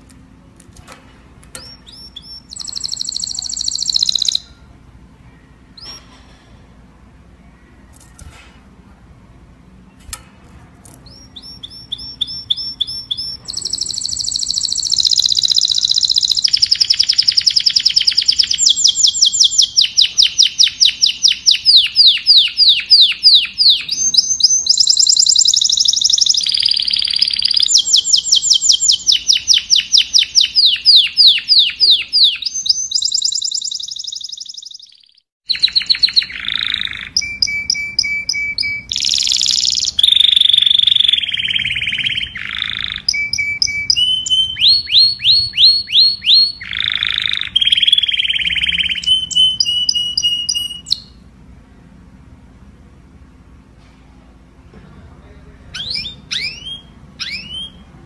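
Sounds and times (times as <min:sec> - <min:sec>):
canary singing rapid trills: 0:01.6 - 0:04.6, 0:11.0 - 0:51.2, 0:55.7 - 0:58.0.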